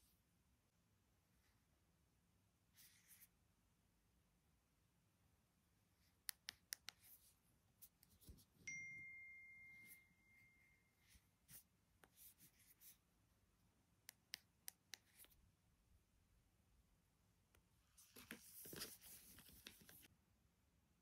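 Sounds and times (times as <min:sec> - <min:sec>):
fingers tapping a smartphone: 0:06.2 - 0:07.2
ringing ding: 0:08.7 - 0:10.9.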